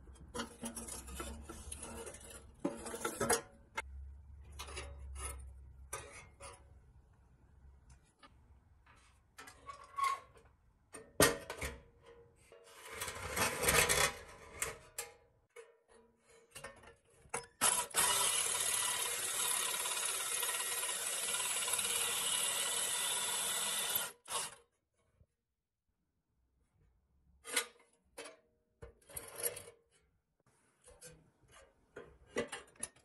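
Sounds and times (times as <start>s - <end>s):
cordless drill into steel: 17.6s - 24.6s.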